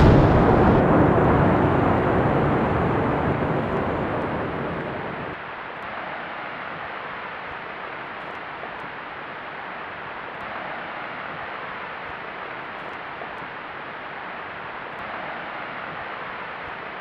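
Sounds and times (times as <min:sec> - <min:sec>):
building collapsing rumble: 0:00.0 - 0:05.4
steady hiss: 0:00.0 - 0:05.6.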